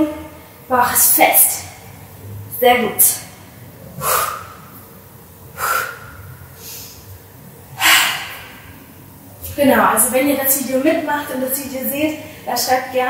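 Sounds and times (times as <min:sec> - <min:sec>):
woman exhaling forcefully: 0:04.0 - 0:04.8, 0:05.6 - 0:07.0, 0:07.8 - 0:08.7.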